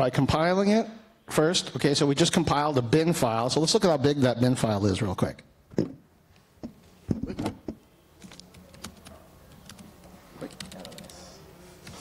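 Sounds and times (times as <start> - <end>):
laptop keyboard keystrokes: 7.4 - 9.9, 10.5 - 11.2.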